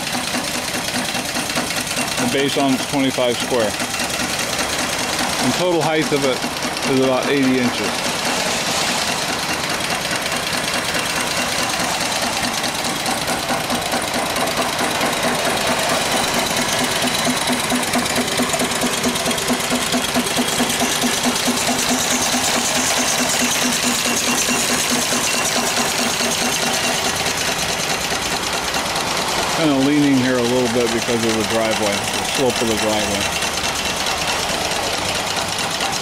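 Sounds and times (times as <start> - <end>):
steam hiss: 0.0 - 35.9
steam engine mechanical beat: 0.0 - 36.0.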